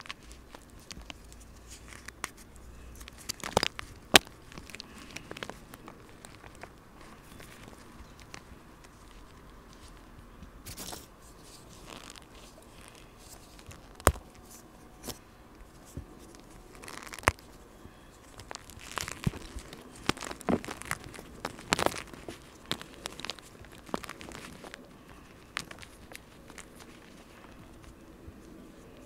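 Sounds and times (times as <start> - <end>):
sharp cracks: 0.0 - 9.4.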